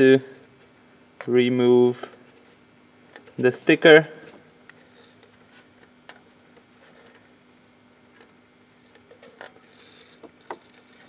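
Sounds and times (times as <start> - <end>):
faint steady hum: 0.0 - 11.0.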